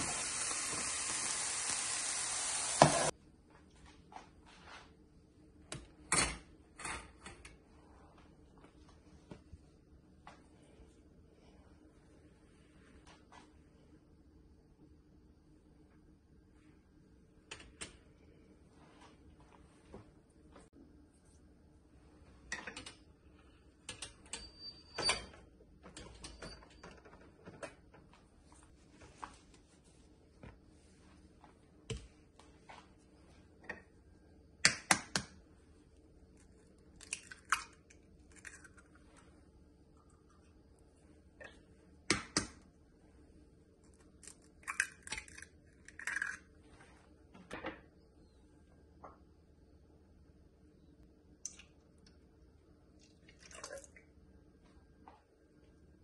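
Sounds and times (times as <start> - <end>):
eggshell cracking: 37.0 - 39.0, 44.2 - 46.5.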